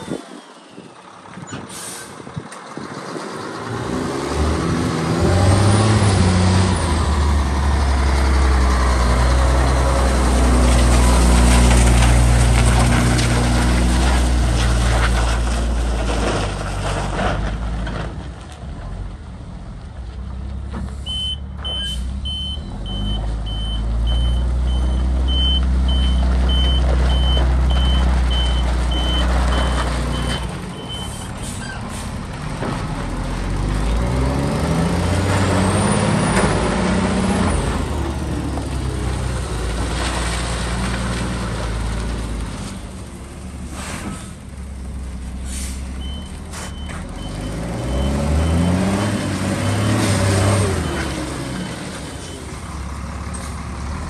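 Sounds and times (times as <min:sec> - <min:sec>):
diesel truck engine: 0:00.0 - 0:54.0
reversing alarm beeps: 0:21.1 - 0:31.2.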